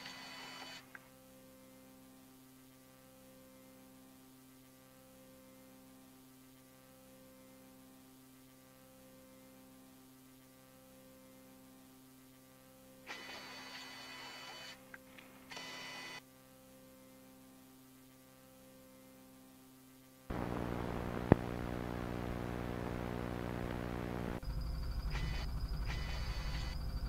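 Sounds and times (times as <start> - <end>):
electrical hum: 20.3 - 27.0
mechanical whirring: 23.5 - 27.0.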